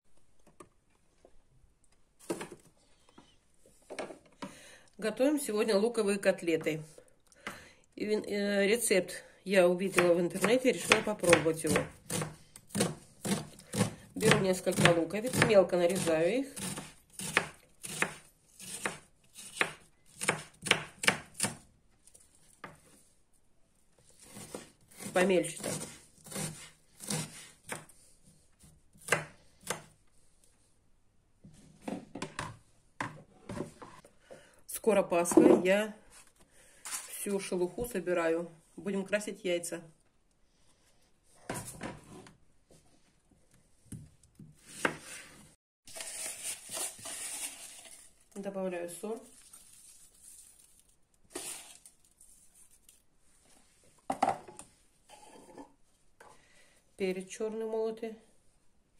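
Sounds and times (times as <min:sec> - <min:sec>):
knife chopping on wooden board: 0:10.8 - 0:21.6.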